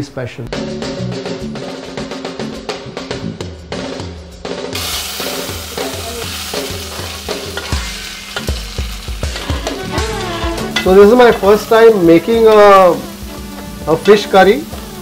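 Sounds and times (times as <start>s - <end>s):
music with drum beat: 0.5s - 15.0s
onions sizzling in hot oil: 4.8s - 15.0s.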